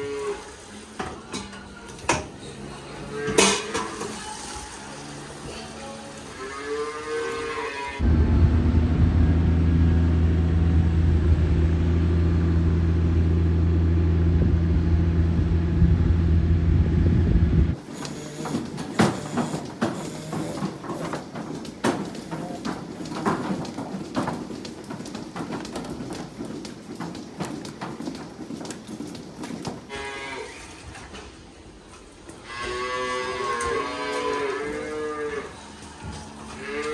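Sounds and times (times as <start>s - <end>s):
calf mooing: 6.3s - 8.0s, 32.4s - 36.9s.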